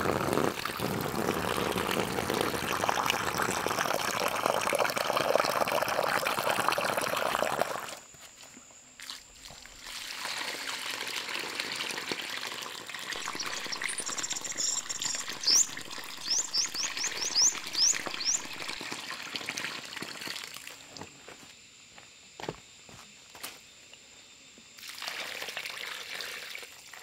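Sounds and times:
water pouring and splashing: 0.0s - 8.0s, 9.0s - 21.0s, 24.8s - 27.0s
short high rising chirps: 13.2s - 18.8s.

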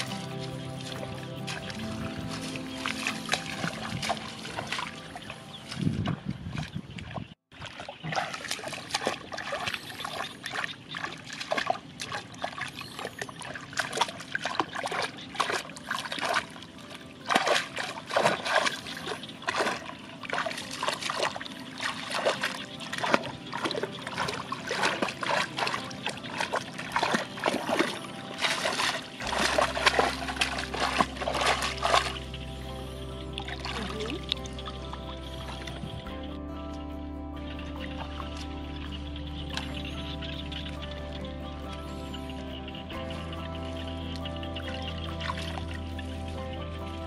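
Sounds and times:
hands splashing in muddy water: 0.0s - 32.6s, 33.4s - 35.8s.

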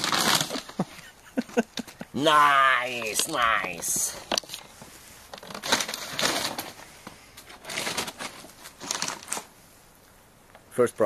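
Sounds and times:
paper bag rustling and crinkling: 0.0s - 0.9s, 2.9s - 9.6s.

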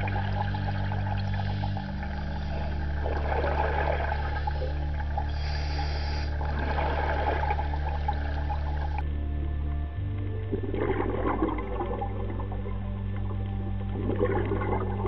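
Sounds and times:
exhaust bubbles: 0.0s - 9.0s, 10.4s - 15.0s
low sustained background music: 0.0s - 15.0s
scuba regulator breathing: 4.2s - 6.9s.

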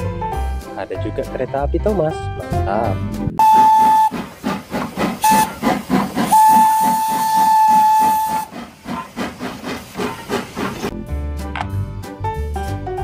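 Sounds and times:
steam whistle blasts: 3.4s - 4.3s, 5.2s - 8.6s
steam locomotive chuffing: 3.4s - 10.9s.

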